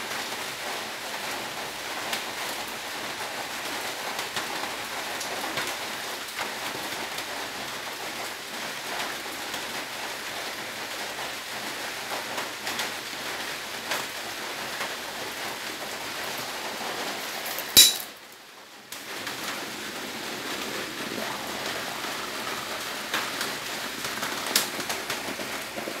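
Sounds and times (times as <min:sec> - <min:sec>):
metal lid snapping shut: 0:17.8 - 0:18.1.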